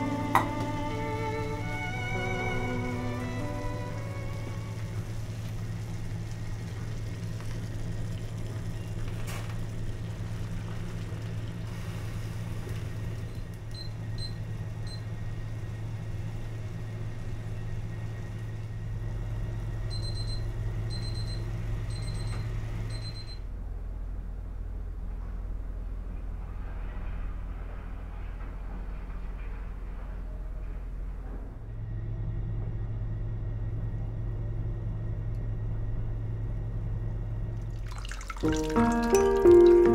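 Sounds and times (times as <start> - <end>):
water boiling in saucepan: 0.0 - 21.8, 37.5 - 39.9.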